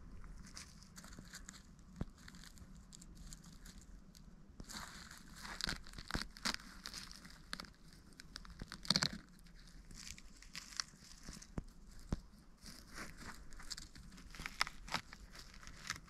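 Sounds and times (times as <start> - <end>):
dry leaves and twigs crackling: 0.0 - 16.0
leaves crunching underfoot: 4.6 - 16.0.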